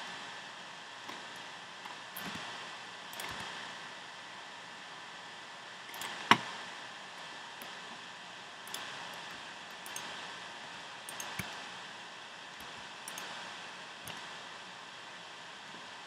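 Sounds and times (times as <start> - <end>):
steady hiss: 0.0 - 16.0
mouse and keyboard clicks: 2.2 - 2.5, 3.2 - 3.5, 5.9 - 6.5, 8.7 - 10.1, 11.1 - 11.6, 12.6 - 13.4.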